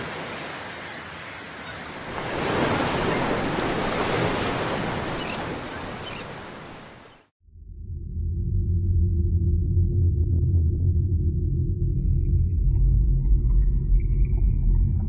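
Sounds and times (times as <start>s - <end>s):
surf washing onto beach: 0.0s - 7.3s.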